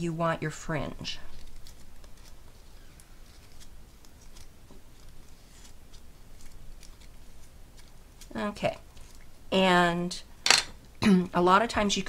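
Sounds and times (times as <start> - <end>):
paper crinkling and rustling: 1.3 - 9.3.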